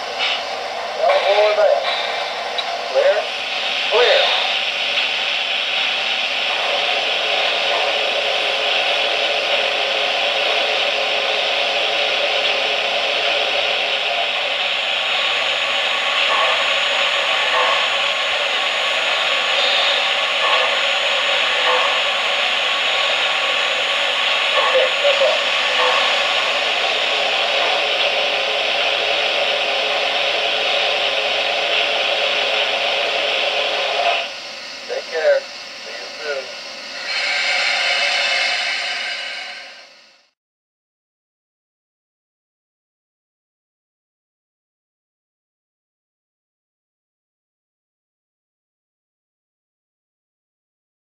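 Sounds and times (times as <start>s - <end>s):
model train hissing whir: 0.0s - 40.4s.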